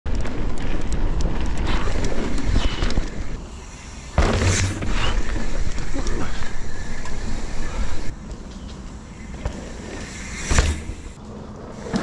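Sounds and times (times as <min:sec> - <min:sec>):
bike rattles and clicks: 0:00.1 - 0:12.0
bike landing with heavy thud: 0:04.1 - 0:05.6, 0:09.4 - 0:11.2.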